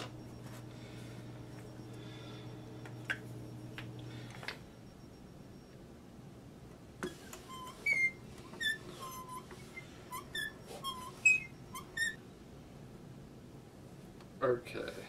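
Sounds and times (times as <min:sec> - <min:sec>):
metal fitting squeaking: 0:07.0 - 0:12.2.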